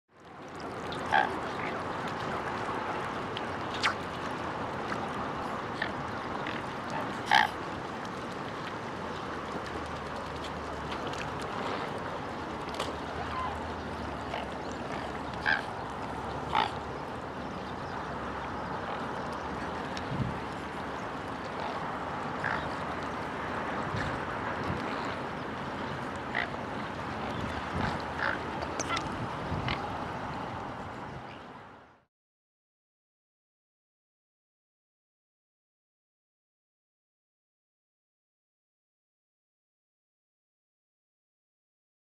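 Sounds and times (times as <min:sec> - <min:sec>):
swans giving nasal calls: 0:01.0 - 0:01.8, 0:05.8 - 0:07.6, 0:13.1 - 0:16.9, 0:21.4 - 0:22.8.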